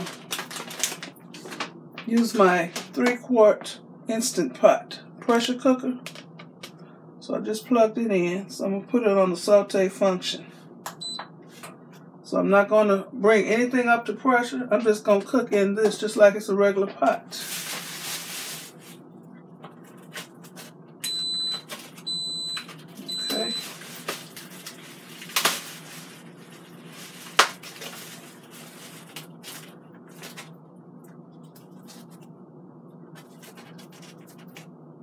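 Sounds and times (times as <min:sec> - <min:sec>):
plastic packaging crinkling: 0:00.0 - 0:01.7, 0:17.4 - 0:19.0, 0:23.6 - 0:30.5
pressure cooker beeping: 0:21.1 - 0:23.6.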